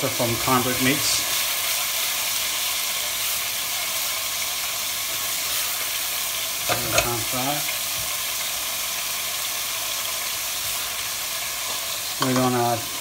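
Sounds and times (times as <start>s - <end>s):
bacon and onions sizzling in oil: 0.0s - 13.0s
person speaking: 6.7s - 7.7s, 12.2s - 13.0s.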